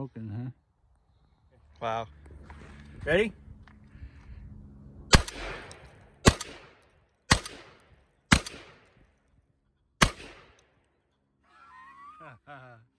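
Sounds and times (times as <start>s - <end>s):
gunshots echoing: 5.1s - 9.0s, 10.0s - 10.8s.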